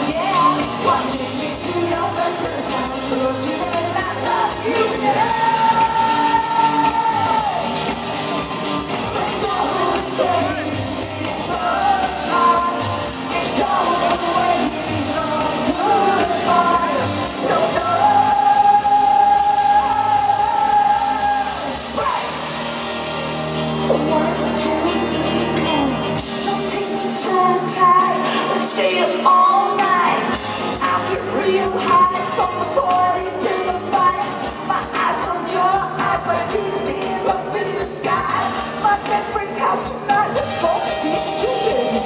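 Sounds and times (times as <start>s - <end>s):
person singing: 0.0s - 22.5s, 23.7s - 42.0s
indie-pop band playing: 0.0s - 42.0s.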